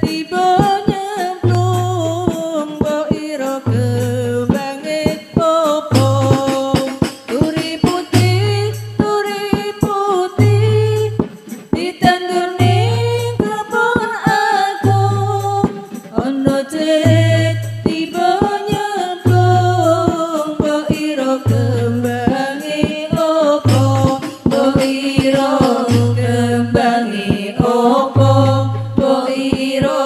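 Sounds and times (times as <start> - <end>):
women singing: 0.0 - 30.0
slapped drum strokes: 4.5 - 30.0
deep drum strokes: 23.1 - 30.0.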